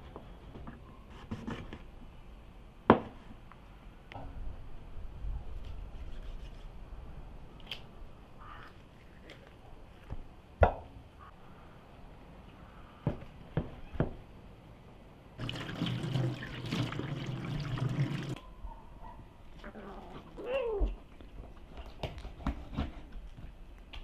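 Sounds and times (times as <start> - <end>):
water pouring and splashing: 15.4 - 18.4
cat meowing: 20.4 - 21.0.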